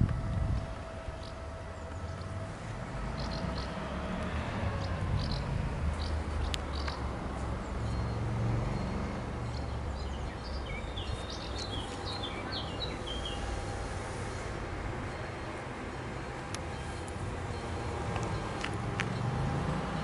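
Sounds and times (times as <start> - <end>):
low outdoor rumble: 0.0 - 20.0
small birds chirping: 4.8 - 7.1, 8.8 - 13.6.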